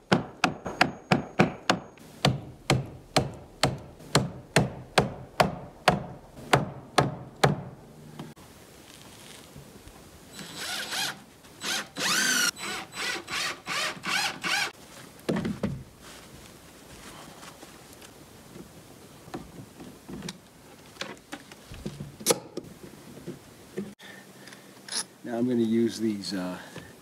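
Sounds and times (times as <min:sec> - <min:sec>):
hammer blows: 0:00.0 - 0:07.8
power drill bursts: 0:10.3 - 0:14.7.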